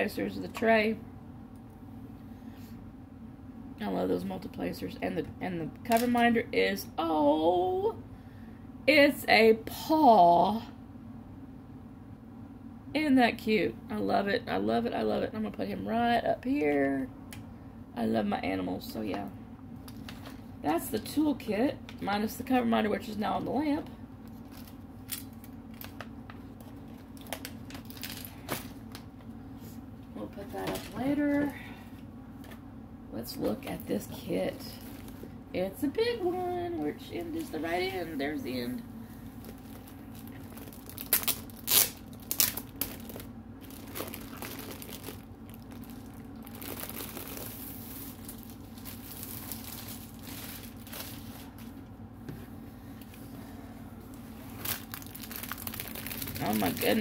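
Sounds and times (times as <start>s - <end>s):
steady low hum: 0.0s - 57.0s
plastic packaging crinkling: 24.3s - 29.2s, 39.3s - 51.8s, 54.4s - 57.0s.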